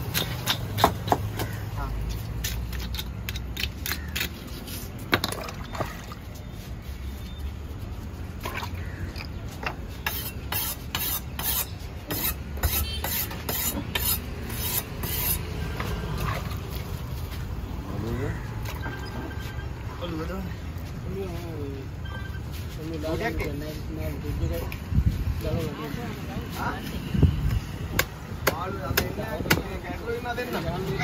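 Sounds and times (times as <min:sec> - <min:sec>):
knife scraping fish scales: 0:10.0 - 0:15.5.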